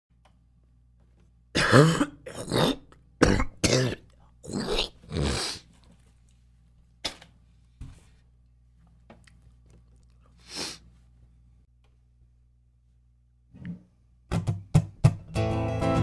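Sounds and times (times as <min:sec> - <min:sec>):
person coughing: 0:01.6 - 0:05.6.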